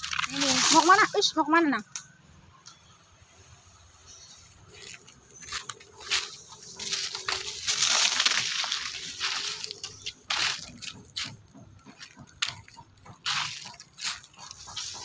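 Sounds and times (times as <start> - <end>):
footsteps crunching dry leaves: 0.0 - 1.3, 4.6 - 11.4, 12.0 - 15.0.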